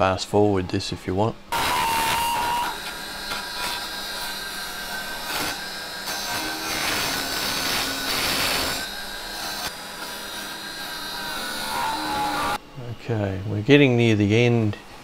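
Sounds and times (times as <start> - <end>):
lathe whining: 1.5 - 12.6.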